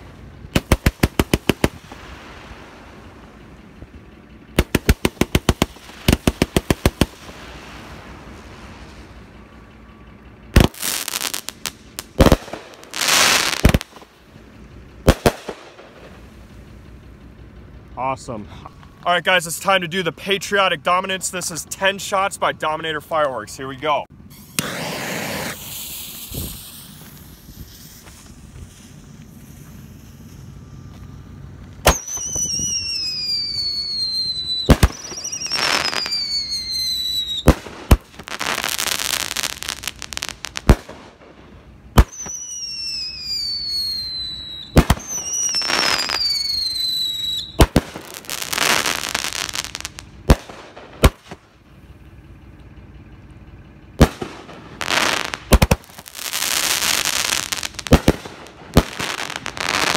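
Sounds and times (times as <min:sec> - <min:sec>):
firework bangs: 0:00.0 - 0:03.2, 0:04.5 - 0:09.1, 0:10.5 - 0:14.2, 0:15.0 - 0:16.5, 0:24.3 - 0:30.4, 0:31.8 - 0:51.5, 0:54.0 - 0:59.9
firework crackling: 0:00.0 - 0:09.7, 0:10.3 - 0:16.9, 0:24.3 - 0:52.0, 0:54.0 - 0:59.9
firework shots thumping: 0:00.5 - 0:02.2, 0:04.6 - 0:07.5, 0:10.6 - 0:14.2, 0:15.0 - 0:16.2, 0:24.4 - 0:30.3, 0:31.8 - 0:51.5, 0:54.0 - 0:59.9
fuse sparking: 0:24.3 - 0:30.4
falling whistle: 0:31.9 - 0:37.5, 0:42.1 - 0:47.6.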